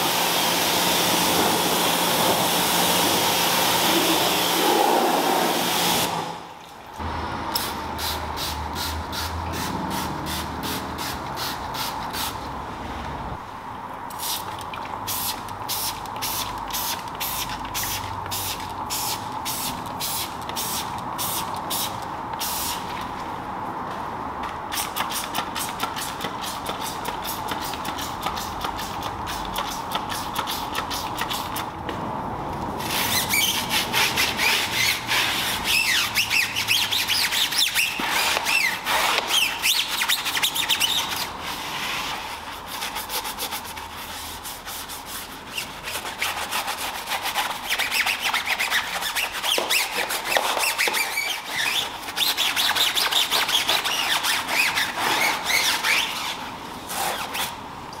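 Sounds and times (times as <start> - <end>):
brush scrubbing tyre: 32.8 - 57.5.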